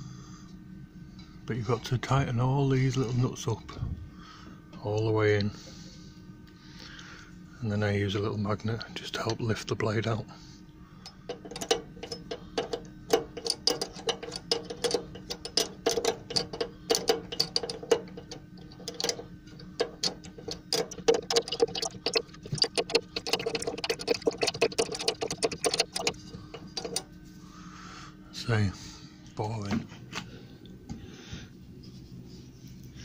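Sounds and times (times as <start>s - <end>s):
spanner clicking on nuts: 11.0s - 27.1s.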